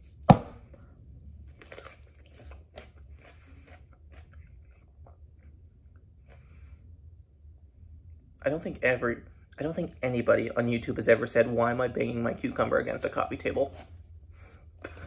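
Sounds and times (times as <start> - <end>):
cucumber crunching: 1.4 - 6.0.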